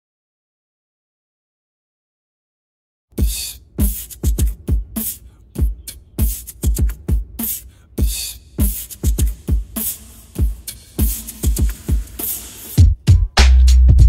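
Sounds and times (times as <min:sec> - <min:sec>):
beatbox beat: 0:03.1 - 0:14.0.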